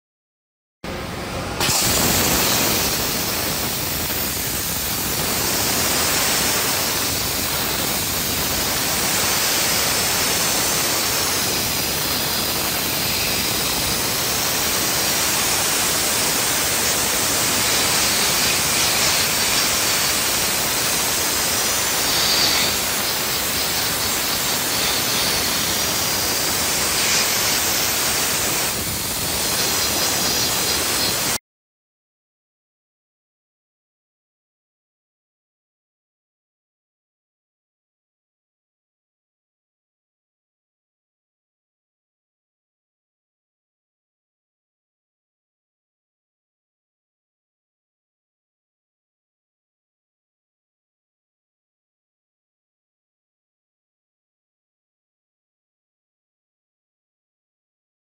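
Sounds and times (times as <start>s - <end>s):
high-pressure cleaning nozzle hissing: 1.6s - 31.4s.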